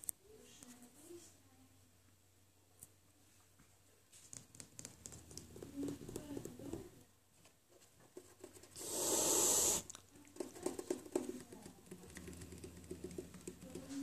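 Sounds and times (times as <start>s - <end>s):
cat hissing: 8.8s - 10.0s.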